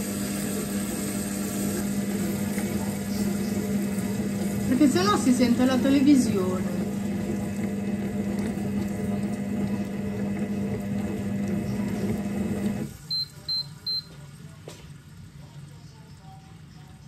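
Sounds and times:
kitchen robot motor hum: 0.0 - 13.0
short high beeps: 13.1 - 14.1.

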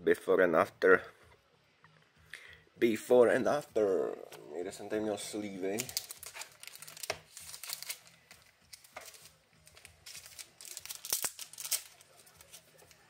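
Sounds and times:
packaging crinkling: 5.7 - 13.0.

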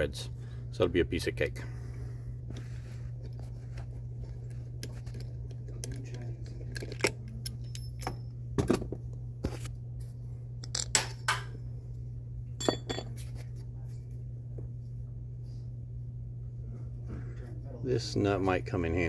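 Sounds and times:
steady low hum: 0.0 - 19.0
metallic clicks and clinks: 5.0 - 8.3.

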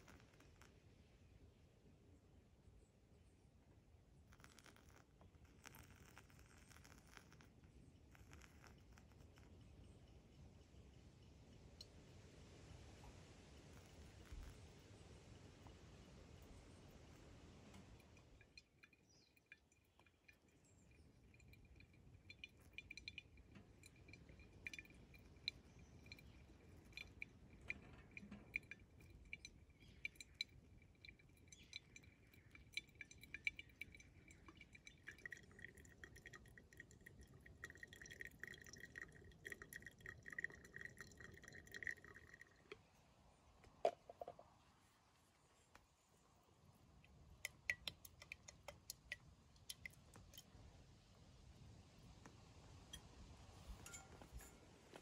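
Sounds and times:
coffee dripping into glass: 0.0 - 0.9, 4.1 - 12.1, 12.9 - 42.9, 46.9 - 50.6, 52.6 - 55.0
water pouring onto grounds: 15.6 - 42.6.

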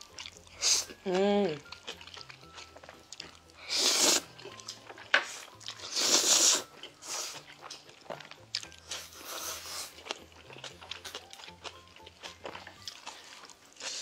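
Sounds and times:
chewing and mouth sounds: 0.0 - 14.0
noodles slurped loudly: 5.8 - 7.5.

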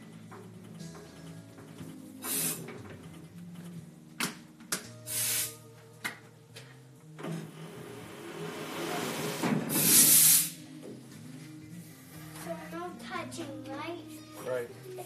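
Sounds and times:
background music: 0.0 - 15.0
short hissing bursts: 2.2 - 2.6, 5.1 - 5.6, 9.7 - 10.6.

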